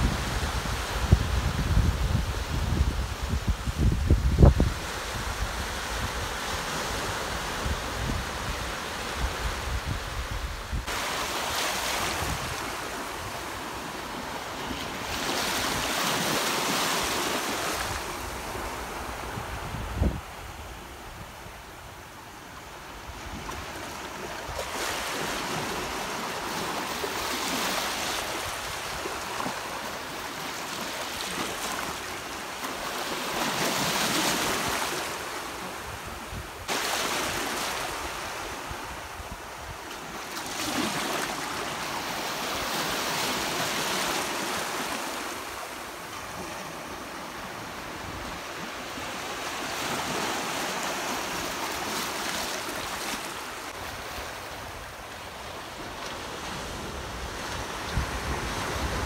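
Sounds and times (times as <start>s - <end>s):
wind rumbling on microphone: 0.0s - 11.1s, 17.5s - 22.1s, 55.7s - 59.0s
surf washing in and out: 0.0s - 59.0s.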